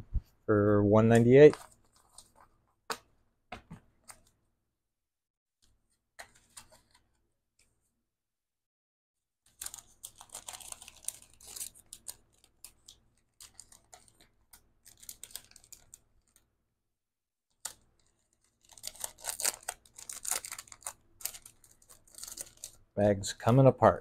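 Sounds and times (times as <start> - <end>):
plastic bag crinkling: 9.5 - 14.2, 14.8 - 16.4, 18.5 - 22.8.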